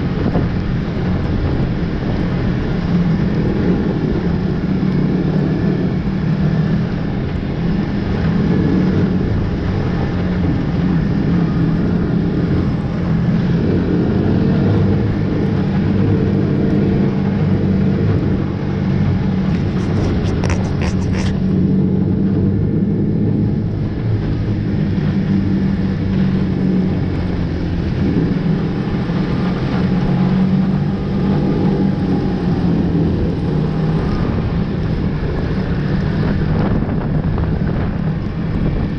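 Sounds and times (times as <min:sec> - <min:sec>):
snowmobile engine running: 0:00.0 - 0:38.9
cluster of clicks: 0:19.5 - 0:21.4.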